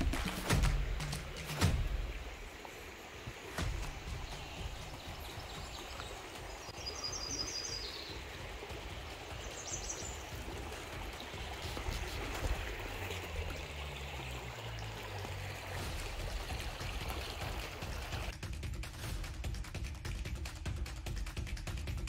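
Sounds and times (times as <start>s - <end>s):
bird chirping: 2.3s - 8.5s, 9.2s - 10.5s.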